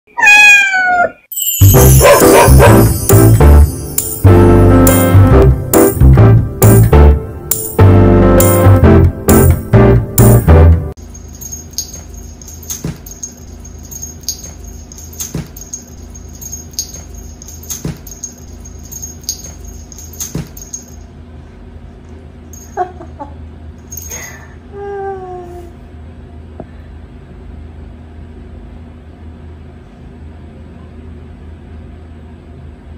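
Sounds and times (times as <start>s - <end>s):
cat crying: 0.1s - 1.3s
cat meowing: 0.1s - 1.3s.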